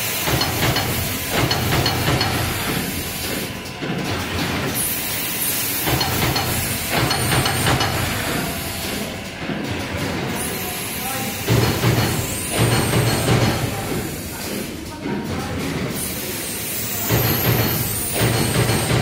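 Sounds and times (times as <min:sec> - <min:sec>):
card punching machine running: 0:00.0 - 0:14.2.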